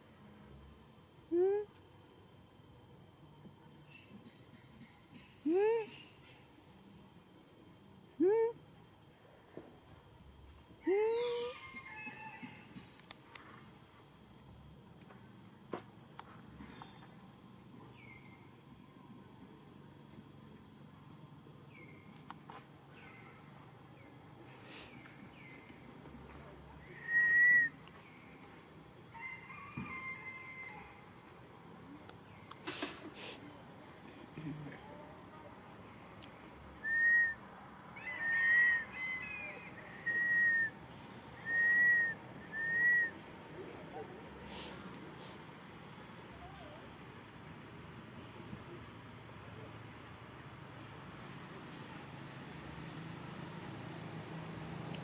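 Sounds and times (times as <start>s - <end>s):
insect drone: 0.0s - 55.0s
whistle-like animal calls: 26.9s - 27.8s, 36.8s - 37.4s, 38.0s - 40.8s, 41.4s - 43.2s.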